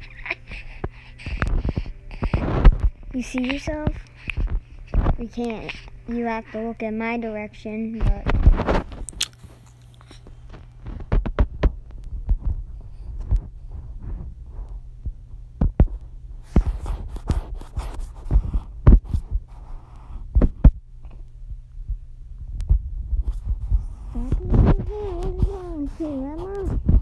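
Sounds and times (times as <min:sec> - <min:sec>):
low steady hum: 0:00.0 - 0:27.0
baby gnawing on hand: 0:08.6 - 0:11.0.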